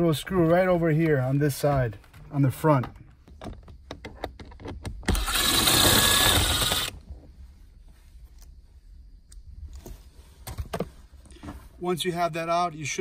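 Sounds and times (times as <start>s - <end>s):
cordless drill running: 5.1s - 7.0s.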